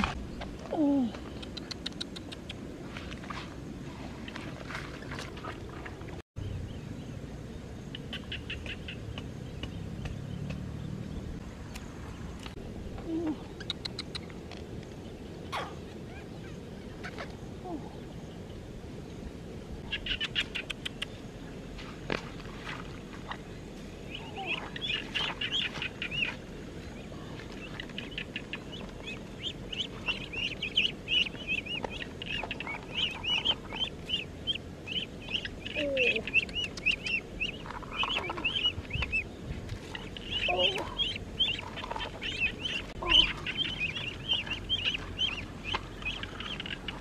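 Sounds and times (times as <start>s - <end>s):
ducklings peeping: 7.9s - 11.2s, 19.8s - 21.2s, 24.0s - 47.0s.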